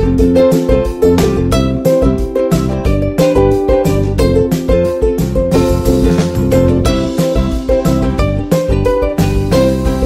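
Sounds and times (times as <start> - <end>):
plucked-string music over beat: 0.0 - 10.0.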